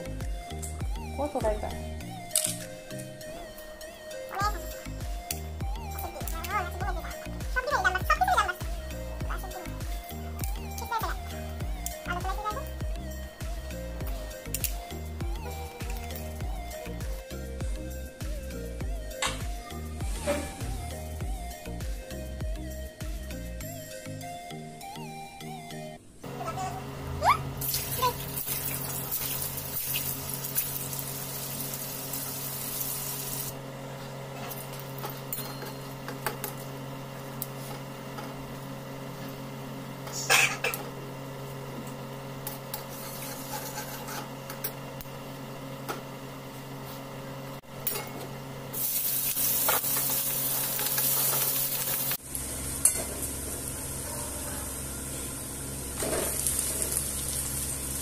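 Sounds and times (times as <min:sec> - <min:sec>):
hot oil sizzling in a pan: 0:27.6 - 0:33.5, 0:48.8 - 0:52.2, 0:56.3 - 0:58.0
metal spatula scraping a pan: 0:42.9 - 0:44.3.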